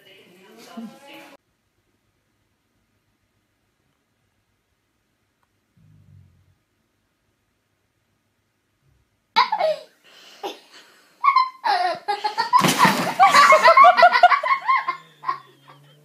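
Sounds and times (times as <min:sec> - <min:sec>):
loud human laughter: 0:11.2 - 0:16.0.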